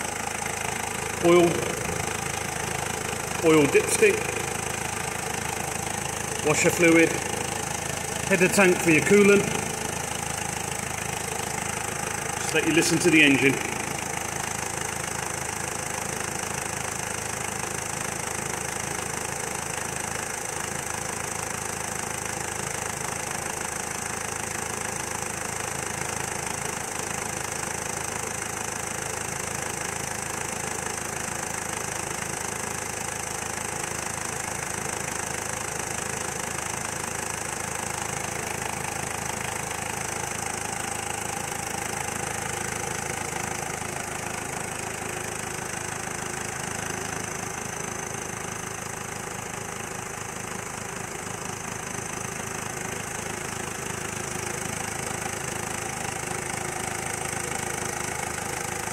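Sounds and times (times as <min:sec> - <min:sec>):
diesel engine idling: 0:00.0 - 0:58.9.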